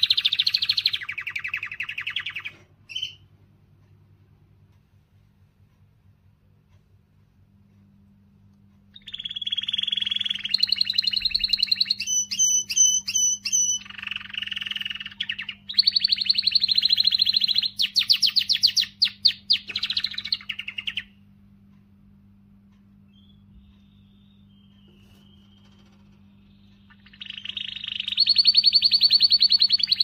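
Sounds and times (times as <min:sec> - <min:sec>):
canary singing trills: 0:00.0 - 0:03.4, 0:08.8 - 0:21.3, 0:22.9 - 0:30.0.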